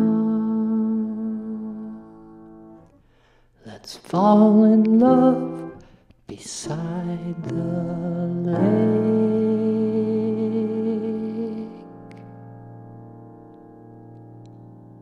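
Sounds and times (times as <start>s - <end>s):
man singing without words: 0.0s - 2.1s, 3.6s - 11.9s.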